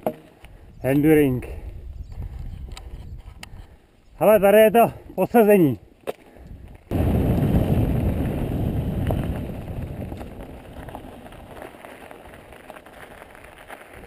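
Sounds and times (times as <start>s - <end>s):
wind buffeting microphone: 0.5s - 4.6s, 6.4s - 12.8s
bike tyres crunching on gravel: 6.1s - 14.0s.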